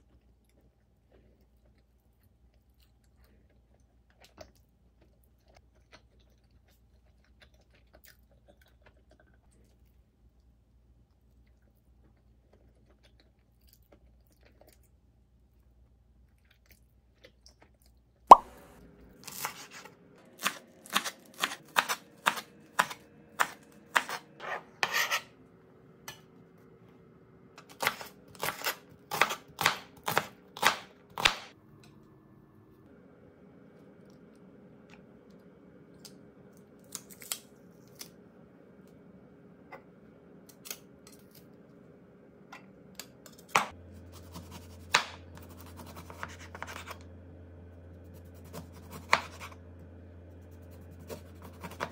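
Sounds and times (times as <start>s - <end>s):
faint steady hum: 0.0s - 51.9s
knife chopping on wooden board: 20.4s - 24.2s, 27.8s - 31.5s, 43.5s - 47.0s.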